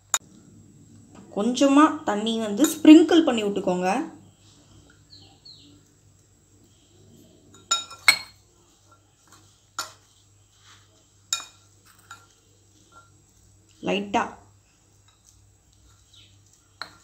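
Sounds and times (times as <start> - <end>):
faint stirring: 0.0 - 17.0
metal spoon clinking glass bowl: 7.5 - 9.0, 11.3 - 13.2, 16.8 - 17.0.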